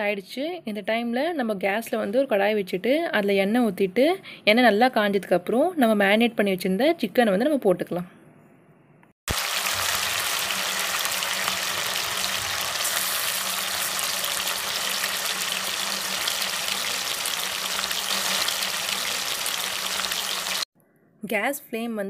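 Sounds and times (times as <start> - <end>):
chicken deep-frying in oil: 9.3 - 20.7.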